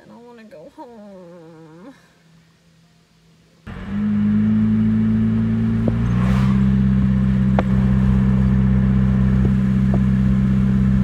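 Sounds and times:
car engine drone: 0:03.6 - 0:11.0
road noise: 0:03.6 - 0:11.0.

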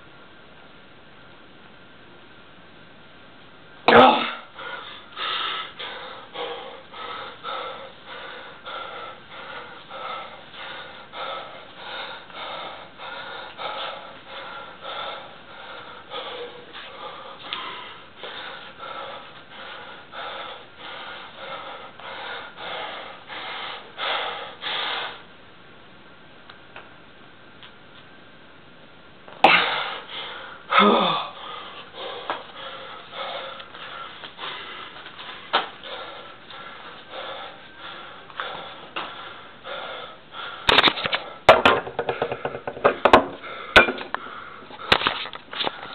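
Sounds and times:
man gasping loudly: 0:03.9 - 0:04.6, 0:29.5 - 0:32.4
man panting hard: 0:03.9 - 0:25.3, 0:29.4 - 0:45.9.

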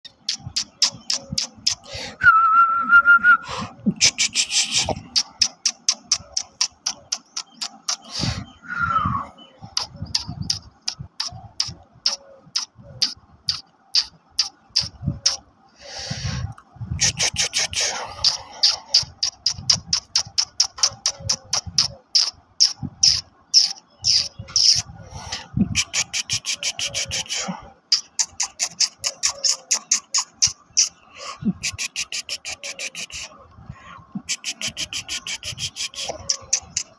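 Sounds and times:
person whistling a steady note: 0:02.2 - 0:03.6, 0:08.6 - 0:09.3
sharp clicks: 0:04.0 - 0:08.1, 0:09.8 - 0:15.4, 0:17.4 - 0:24.8
dog panting: 0:17.6 - 0:21.9.

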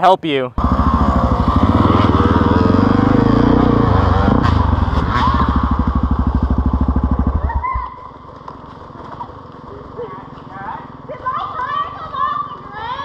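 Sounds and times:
dirt bike engine at low revs: 0:00.6 - 0:10.0.

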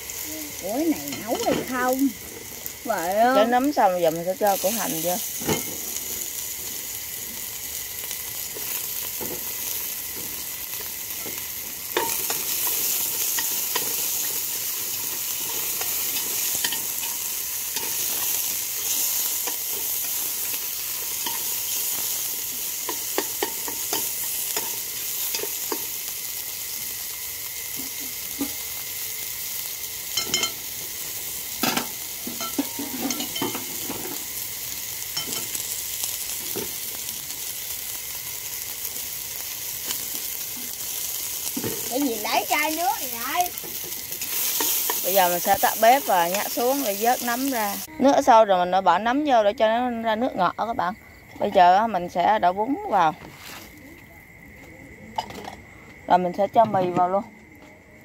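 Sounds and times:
mushrooms sizzling in a pot: 0:00.0 - 0:54.6
chopsticks tapping a pot: 0:22.8 - 0:25.9.

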